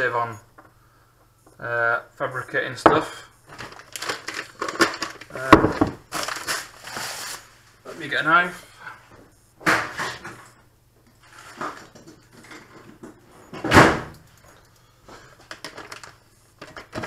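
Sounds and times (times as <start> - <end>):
knocks and thuds of rummaging: 2.9 - 6.4, 15.4 - 17.0
plastic bag crinkling: 3.5 - 7.5, 11.2 - 12.0, 15.4 - 17.0.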